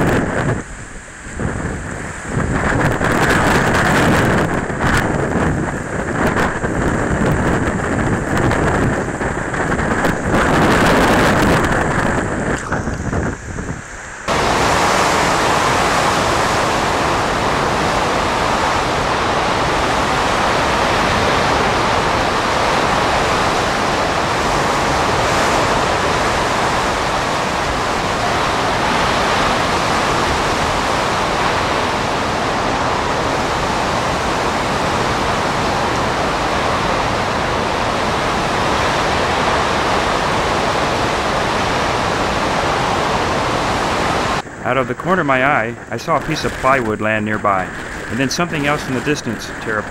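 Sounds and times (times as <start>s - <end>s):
storm wind on microphone: 0.0s - 49.9s
wind-driven rain: 0.0s - 49.9s.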